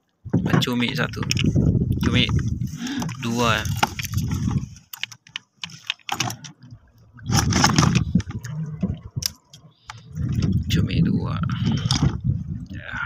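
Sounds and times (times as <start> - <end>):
clicks and knocks in plastic tub: 0.3 - 6.6, 7.3 - 8.5.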